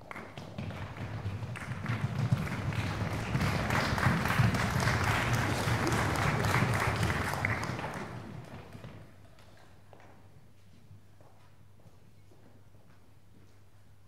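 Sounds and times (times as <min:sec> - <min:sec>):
audience applauding: 0:00.1 - 0:09.1.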